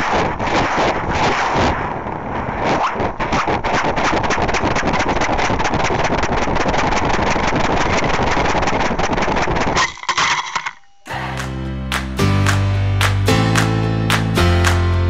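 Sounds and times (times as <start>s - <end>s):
strummed guitar music: 11.1s - 15.0s.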